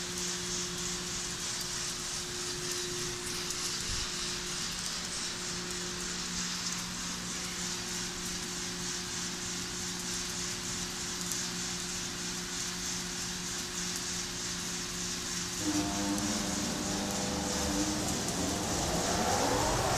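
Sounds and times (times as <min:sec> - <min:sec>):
coffee roaster hissing and humming: 0:00.0 - 0:19.9.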